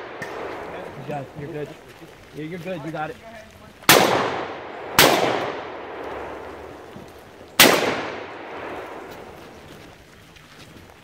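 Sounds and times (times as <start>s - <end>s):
gunshots with echo: 3.9s - 6.7s, 7.6s - 9.1s.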